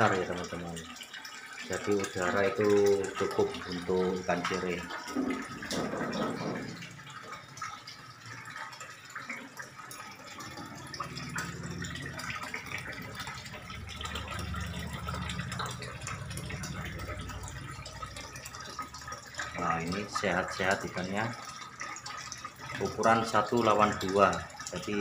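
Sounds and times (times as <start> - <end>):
water bubbling in fish tank: 0.0 - 25.0
low hum: 10.6 - 19.1.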